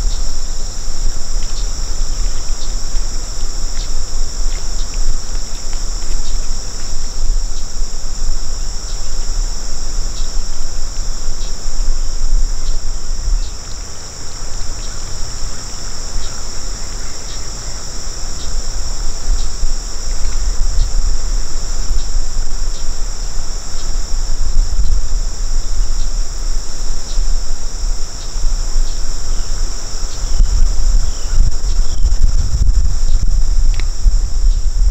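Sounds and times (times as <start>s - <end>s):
insects chorus: 0.0s - 34.9s
faint ticks: 1.3s - 7.7s, 33.1s - 34.6s
loud low rumble: 30.3s - 34.9s.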